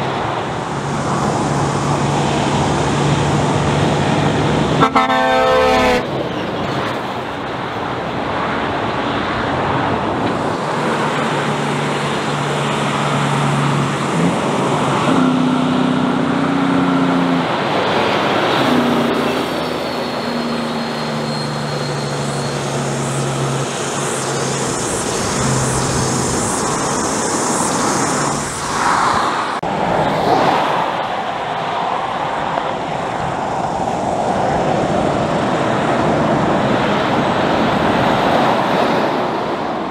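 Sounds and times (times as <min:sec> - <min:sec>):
diesel trucks driving past: 0:00.0 - 0:39.9
air horn toot: 0:04.8 - 0:06.1.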